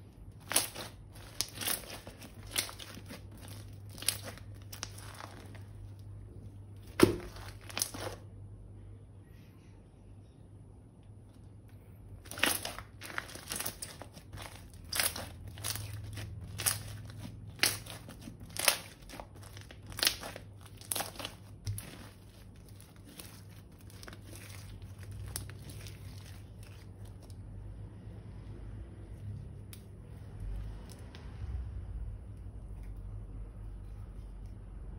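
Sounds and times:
crunchy slime crackling: 0:00.0 - 0:08.4, 0:12.1 - 0:27.8
plastic bag crinkling: 0:00.2 - 0:06.1, 0:06.8 - 0:08.3, 0:12.2 - 0:27.4.

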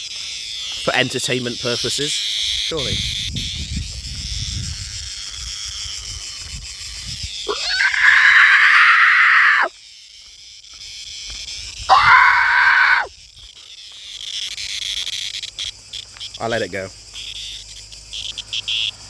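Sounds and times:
cicadas buzzing: 0:00.0 - 0:19.0
man screaming: 0:07.5 - 0:09.7, 0:11.9 - 0:13.1.

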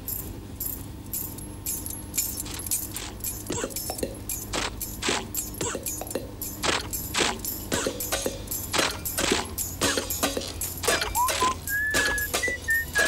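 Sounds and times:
keys jangling: 0:00.0 - 0:05.6
cartoon engine sputtering: 0:01.7 - 0:13.0.

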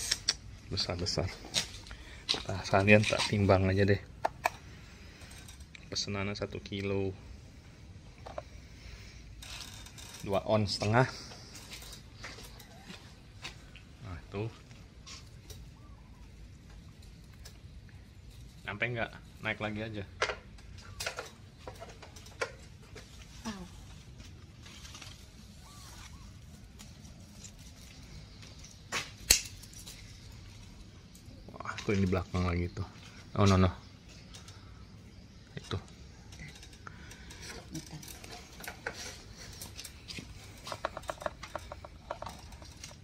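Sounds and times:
vine leaves rustling: 0:23.0 - 0:34.7.

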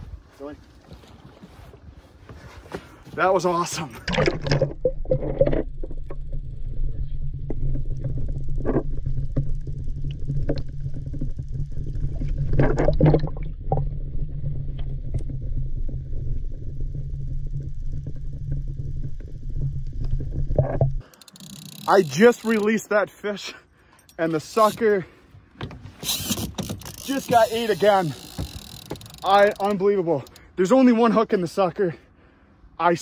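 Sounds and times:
water noises: 0:03.1 - 0:22.9, 0:25.6 - 0:30.8
muffled underwater rumble: 0:04.2 - 0:21.0.

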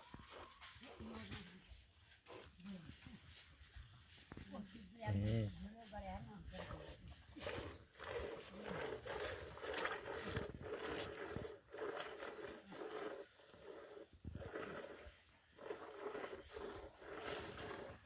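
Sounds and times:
milk squirting into container: 0:07.3 - 0:18.0.

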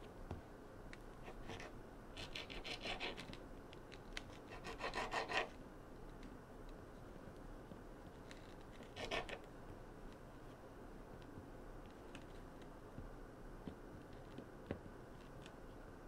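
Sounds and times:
knife scraping through dough: 0:01.2 - 0:03.3, 0:04.5 - 0:05.5, 0:08.9 - 0:09.4.

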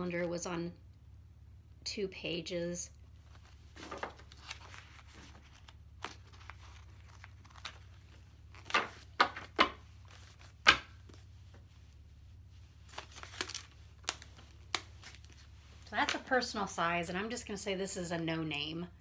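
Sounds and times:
paper rustling: 0:03.2 - 0:11.8, 0:12.8 - 0:16.3.

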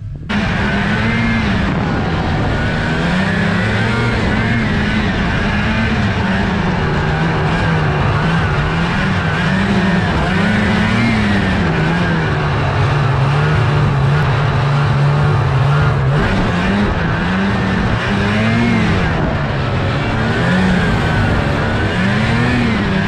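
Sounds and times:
snowmobile engine revving: 0:00.3 - 0:23.0.

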